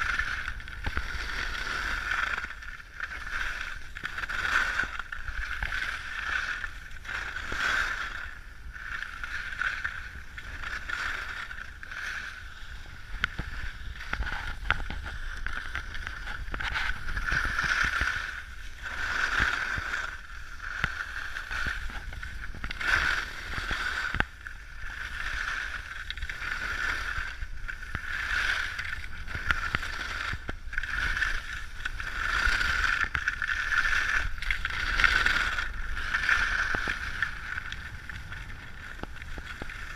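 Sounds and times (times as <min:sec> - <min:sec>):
skis scraping on snow: 0:00.0 - 0:39.9
wind rumble on microphone: 0:00.0 - 0:39.9.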